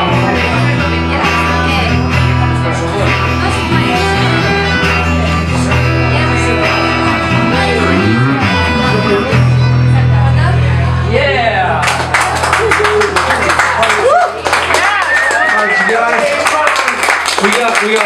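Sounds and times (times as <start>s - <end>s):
guitar playing: 0.0s - 14.5s
man singing: 2.6s - 9.8s
violin playing: 6.9s - 9.8s.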